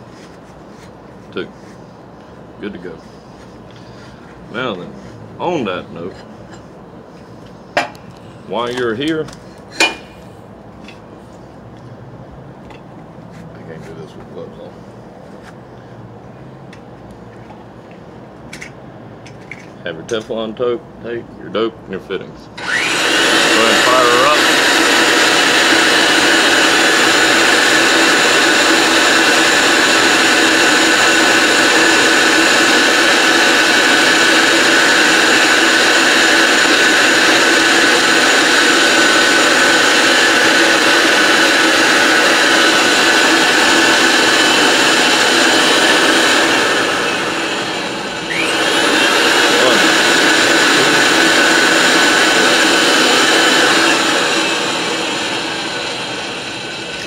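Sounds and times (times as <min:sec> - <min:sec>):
pipe threader motor running: 0:22.6 - 0:57.0.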